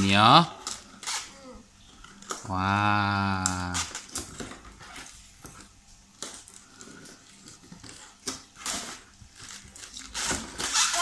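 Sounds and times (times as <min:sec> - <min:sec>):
cardboard rustling and scraping: 0:06.8 - 0:11.0.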